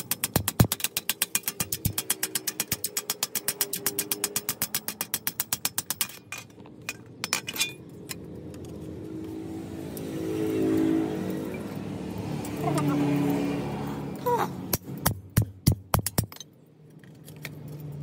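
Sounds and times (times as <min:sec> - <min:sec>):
hammer tapping sheet steel: 0:00.0 - 0:06.4, 0:14.7 - 0:16.4.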